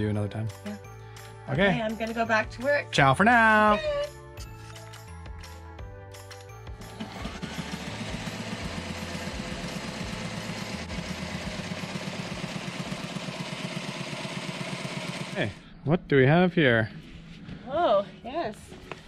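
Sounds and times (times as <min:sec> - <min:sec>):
sewing machine stitching: 0:06.9 - 0:15.6.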